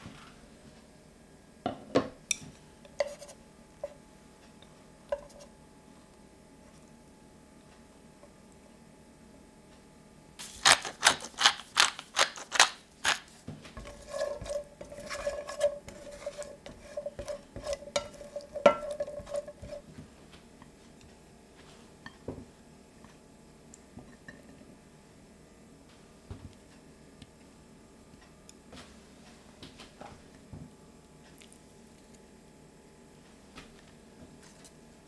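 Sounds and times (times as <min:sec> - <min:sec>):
beans clicking in a metal pan: 0:10.4 - 0:13.3
spatula rattling and scraping pan: 0:10.6 - 0:19.8.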